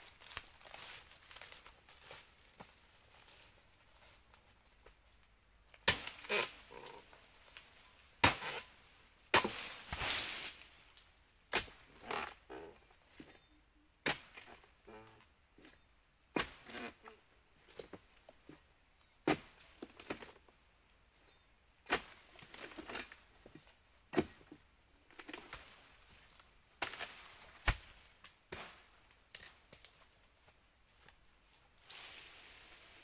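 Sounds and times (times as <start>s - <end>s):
insects droning: 0.0s - 33.0s
sharp chopping strikes: 9.4s - 9.7s.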